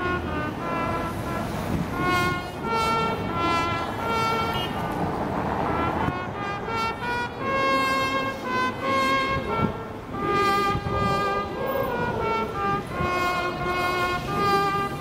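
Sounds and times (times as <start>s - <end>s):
brass band playing mournful melody: 0.0s - 15.0s
murmur of a large crowd: 8.0s - 15.0s.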